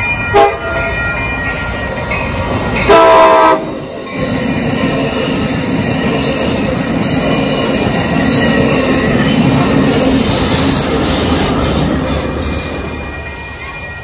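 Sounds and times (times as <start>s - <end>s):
train wheels rolling on rail: 0.0s - 14.0s
train horn blast: 0.3s - 0.7s, 2.9s - 3.7s.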